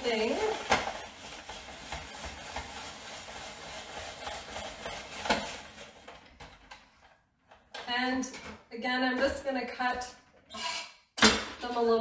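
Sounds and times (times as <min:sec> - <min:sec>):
spiralizer blade scraping vegetable: 0:00.0 - 0:06.1.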